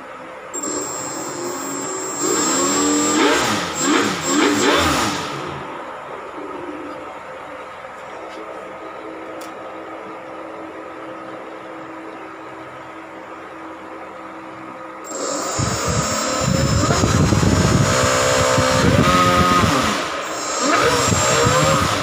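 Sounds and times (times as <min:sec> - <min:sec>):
motor hum: 0:00.0 - 0:22.0
propeller whir: 0:00.6 - 0:07.0, 0:15.0 - 0:22.0.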